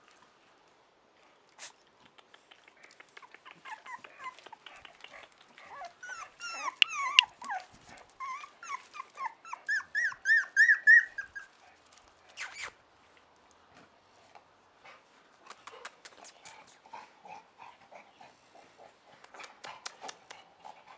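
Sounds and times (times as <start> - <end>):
puppies whimpering and squeaking: 3.2 - 4.6, 5.6 - 11.6
puppy squealing: 5.7 - 7.6, 8.2 - 11.5.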